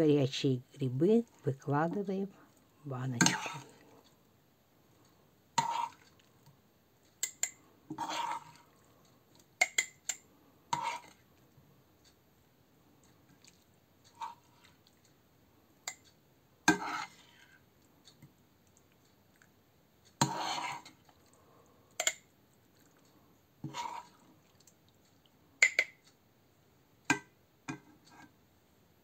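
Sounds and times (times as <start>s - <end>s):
metal spoon scraping a frying pan: 3.2s - 3.9s, 5.6s - 6.1s, 7.2s - 8.7s, 9.6s - 11.2s, 14.1s - 14.7s, 16.7s - 17.5s, 20.2s - 21.0s, 23.6s - 24.2s.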